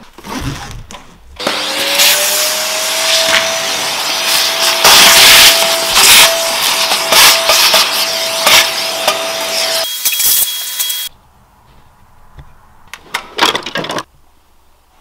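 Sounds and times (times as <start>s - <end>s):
shop vacuum running: 1.4s - 11.1s.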